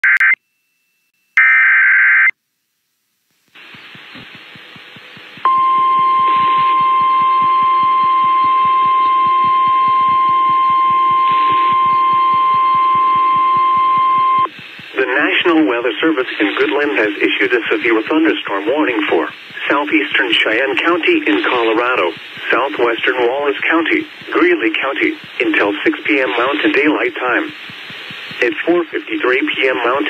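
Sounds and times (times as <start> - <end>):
hiss with pulsing: 3.5 - 30.0
steady high alert tone: 5.5 - 14.5.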